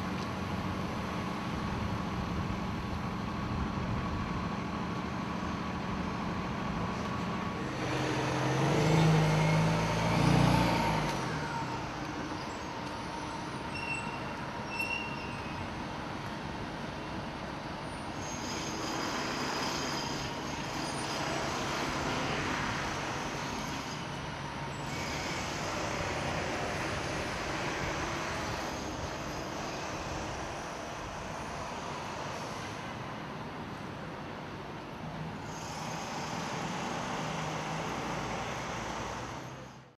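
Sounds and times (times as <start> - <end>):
traffic hum: 0.0 - 39.9
heavy vehicle engine passing: 5.6 - 13.7.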